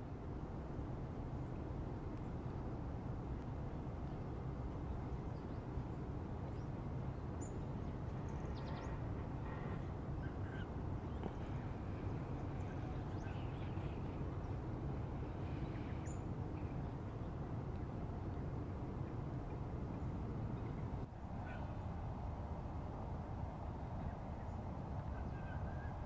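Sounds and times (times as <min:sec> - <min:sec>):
steady low rumble: 0:00.0 - 0:25.5
faint bird calls: 0:08.2 - 0:14.6.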